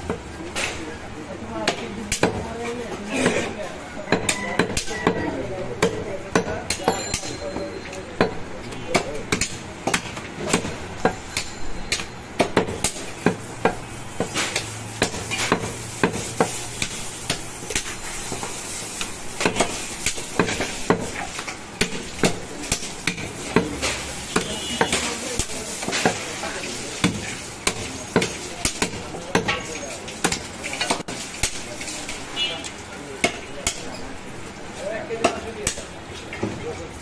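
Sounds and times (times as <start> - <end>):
cleaver chopping meat and bone: 1.6 - 2.4, 4.1 - 7.3, 8.2 - 26.3, 27.0 - 31.7, 33.2 - 34.0, 35.2 - 35.9.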